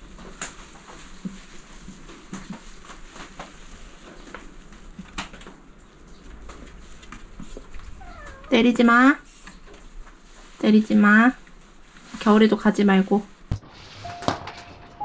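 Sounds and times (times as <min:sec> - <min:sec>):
rain pattering: 0:00.0 - 0:08.9.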